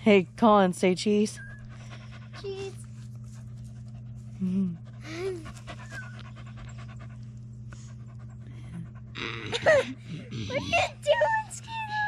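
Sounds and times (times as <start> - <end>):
steady low hum: 0.0 - 12.0
dog panting: 1.2 - 9.9.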